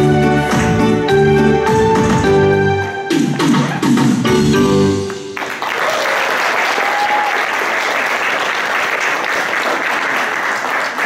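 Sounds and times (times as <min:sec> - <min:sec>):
backing music: 0:00.0 - 0:05.6
audience applauding: 0:05.1 - 0:11.0.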